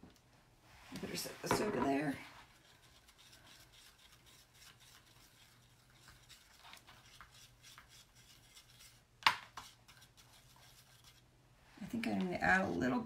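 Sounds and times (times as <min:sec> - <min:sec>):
palette knife scraping paste: 0:01.5 - 0:11.2.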